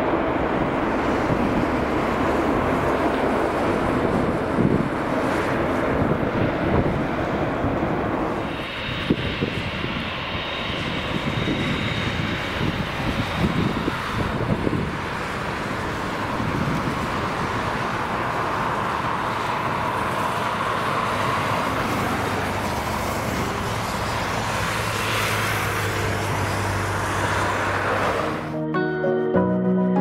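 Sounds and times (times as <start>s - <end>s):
jet engines rushing and rumbling: 0.0s - 28.6s
low hum: 7.5s - 14.2s.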